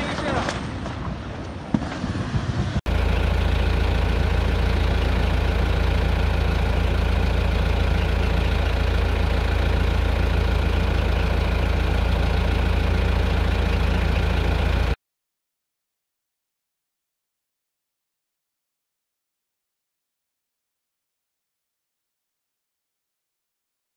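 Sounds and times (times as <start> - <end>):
loud engine drone: 2.9 - 15.0.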